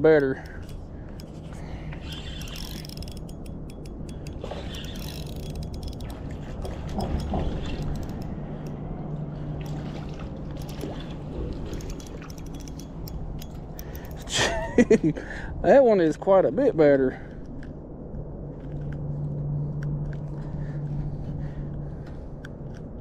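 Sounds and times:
fishing reel clicking: 0.2 - 6.4, 7.0 - 8.8, 10.5 - 14.3.

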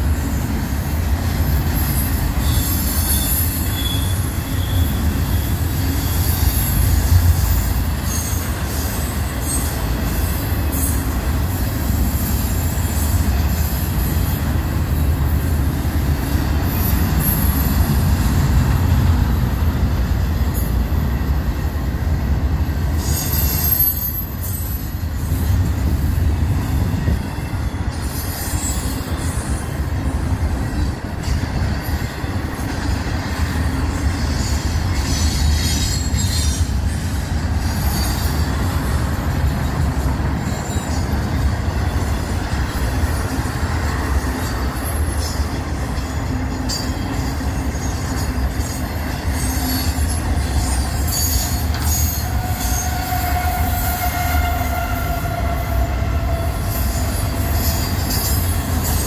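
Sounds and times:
steel wheels rumbling on rail: 0.0 - 59.0
high-pitched wheel squeal: 1.6 - 11.1, 23.0 - 25.6, 27.0 - 29.8, 34.4 - 42.8, 44.9 - 59.0.

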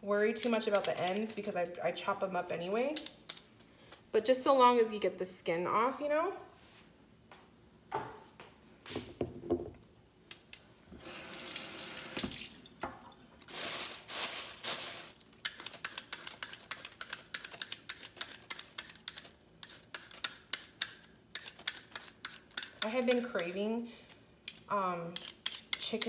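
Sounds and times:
peeler scraping carrot: 15.4 - 23.7, 24.5 - 26.0.

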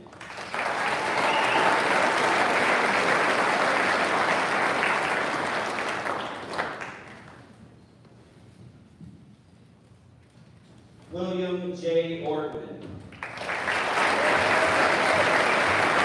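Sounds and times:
audience applause: 0.0 - 7.4, 13.2 - 16.0.

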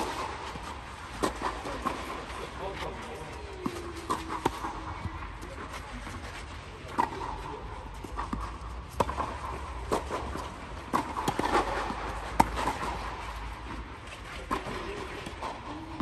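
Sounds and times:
racket hitting tennis ball: 0.0 - 2.4, 3.6 - 6.3, 6.9 - 16.0
ball bouncing on clay: 8.0 - 13.0.

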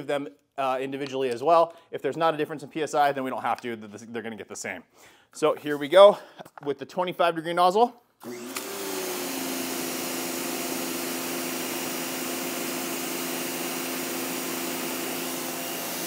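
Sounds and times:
pressure washer motor humming: 8.2 - 16.0.

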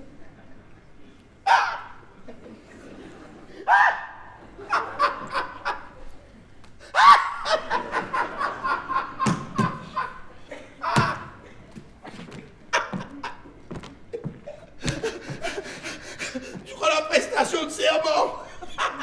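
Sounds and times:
man laughing hard: 4.6 - 5.9, 6.9 - 11.4, 14.2 - 16.7, 17.8 - 19.0.

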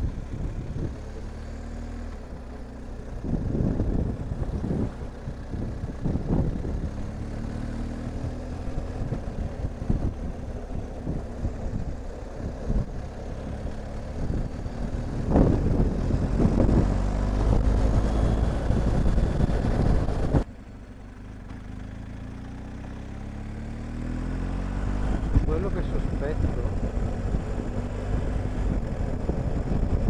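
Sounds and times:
wind noise on microphone: 0.0 - 1.0, 3.2 - 7.1, 8.2 - 20.5, 24.9 - 30.0
motorcycle engine running: 0.0 - 30.0.

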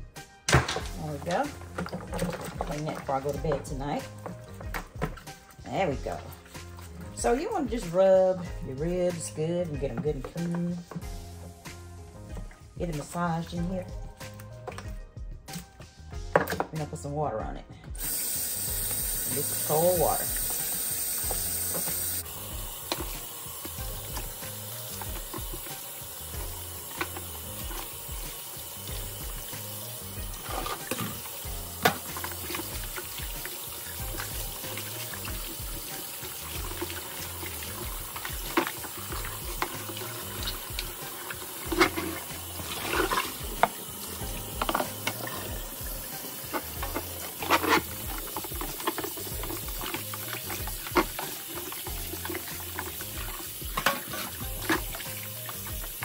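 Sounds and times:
splashes and knocks: 0.4 - 7.6, 12.3 - 15.7, 19.7 - 56.0
faucet running into water: 0.8 - 15.0, 18.0 - 56.0
ribs rubbed and sloshed by hand: 18.9 - 56.0.

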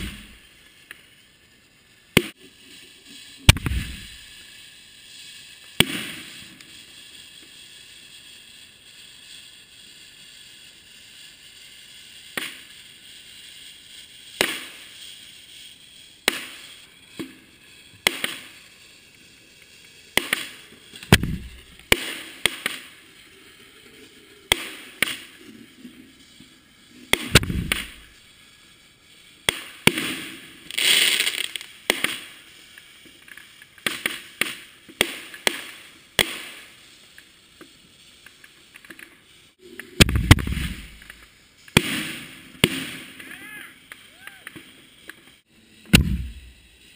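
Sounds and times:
deep firework thumps: 0.0 - 0.4, 3.5 - 4.2, 21.0 - 22.0, 27.1 - 28.1, 40.0 - 41.2, 45.9 - 46.6
fireworks bangs: 0.0 - 9.5, 12.2 - 46.9
fireworks hissing: 0.0 - 46.9.

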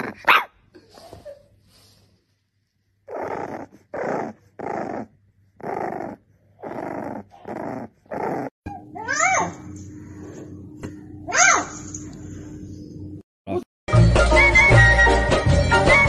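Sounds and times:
puppy growling grumbles: 3.0 - 8.9.

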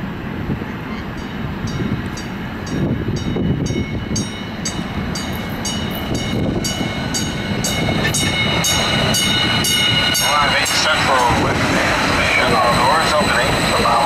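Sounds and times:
train rumbling along track: 0.0 - 14.0
train bell dinging: 1.0 - 11.6.

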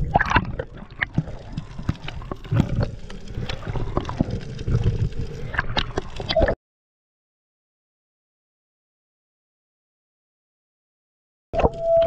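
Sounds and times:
water splashes: 0.0 - 6.6.

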